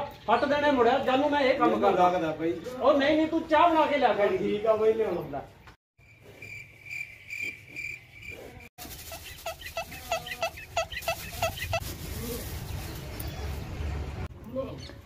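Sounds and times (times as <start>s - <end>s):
cricket chirping: 6.0s - 8.5s.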